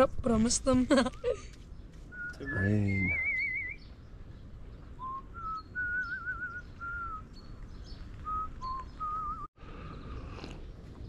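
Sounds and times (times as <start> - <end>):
person whistling a slow tune: 5.0 - 7.2, 8.2 - 9.5.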